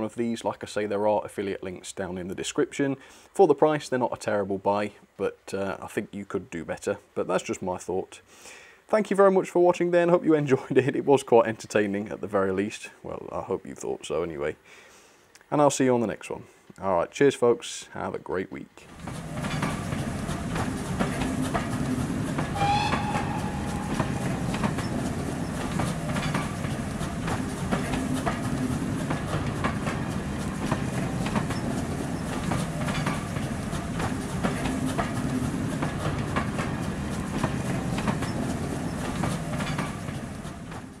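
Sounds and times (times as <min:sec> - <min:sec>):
train rumbling on track: 0:18.9 - 0:41.0
wheels clacking over rail joints: 0:18.9 - 0:41.0
whistle-like tone: 0:22.6 - 0:25.0.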